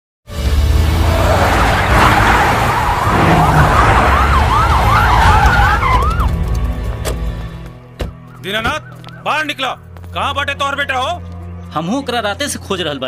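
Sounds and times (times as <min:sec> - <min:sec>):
siren sweeping up and down: 0:01.0 - 0:06.3.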